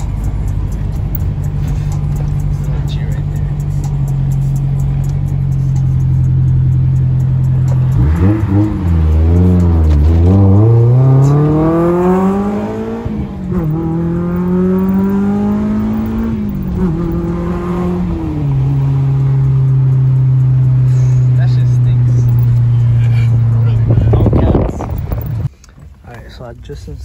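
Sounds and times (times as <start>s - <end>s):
car engine accelerating: 0.0s - 26.8s.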